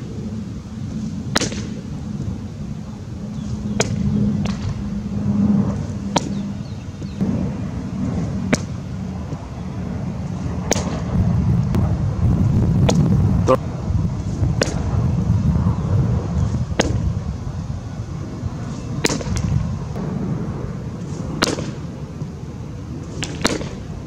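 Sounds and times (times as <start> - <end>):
low steady rumble: 0.0 - 24.0
baseball smacking into mitt: 1.3 - 1.8, 21.4 - 21.8, 23.2 - 23.8.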